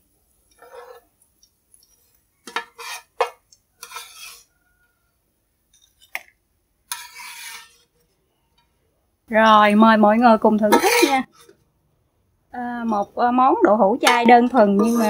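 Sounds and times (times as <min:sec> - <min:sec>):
metal spoon scraping a wok: 0:00.5 - 0:01.0, 0:01.8 - 0:04.6, 0:06.9 - 0:08.2, 0:09.4 - 0:11.6, 0:12.8 - 0:13.2, 0:14.0 - 0:15.0.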